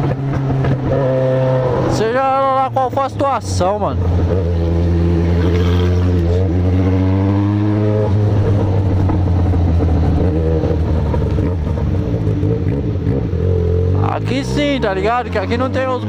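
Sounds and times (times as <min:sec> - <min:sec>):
motorcycle engine running: 0:03.6 - 0:16.0.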